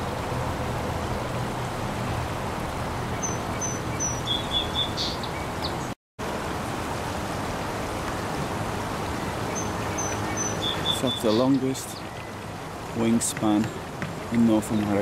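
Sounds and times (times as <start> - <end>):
outdoor background noise: 0.0 - 15.0
small bird chirping: 3.2 - 5.8.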